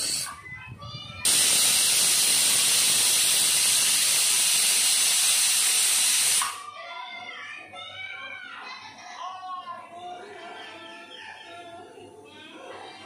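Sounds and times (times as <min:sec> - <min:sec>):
pressure cooker steam hiss: 0:00.0 - 0:00.3, 0:01.2 - 0:06.6.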